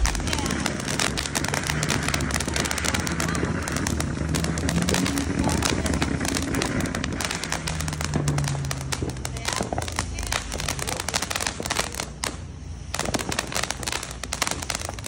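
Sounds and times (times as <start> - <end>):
fireworks crackling: 0.0 - 15.0.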